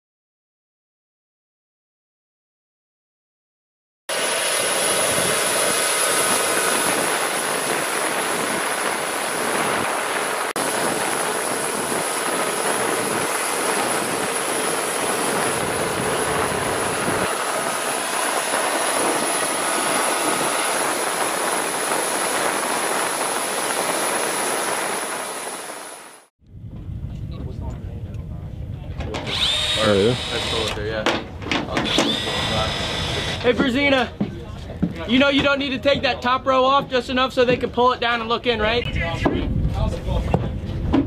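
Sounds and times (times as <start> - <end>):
helicopter engine whine: 4.1 - 28.5
engine and airflow rush: 4.1 - 30.9.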